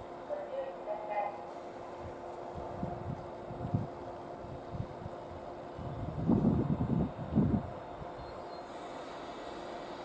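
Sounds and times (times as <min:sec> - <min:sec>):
electric train humming: 0:00.0 - 0:10.0
low rumbling surges: 0:01.4 - 0:08.3.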